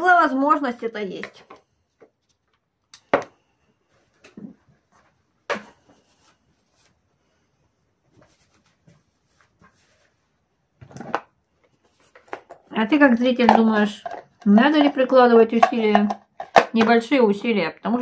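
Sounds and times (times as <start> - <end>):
faint handling sounds: 1.3 - 12.7.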